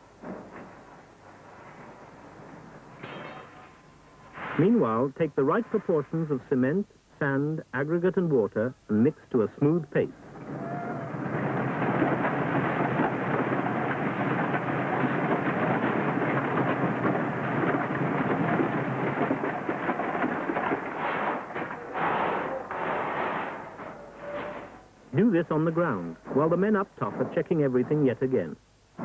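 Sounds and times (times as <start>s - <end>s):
concrete mixer churning: 10.2s - 23.9s
aggregate tipping from hopper: 10.3s - 27.5s.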